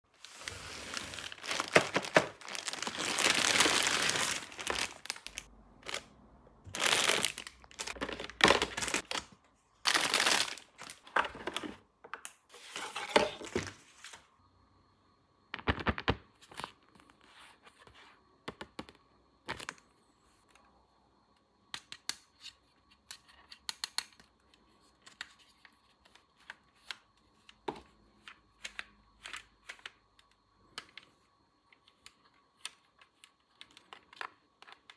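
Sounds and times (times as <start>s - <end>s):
plastic packaging tearing and crinkling: 0.2s - 6.0s, 6.7s - 9.2s, 9.9s - 11.0s.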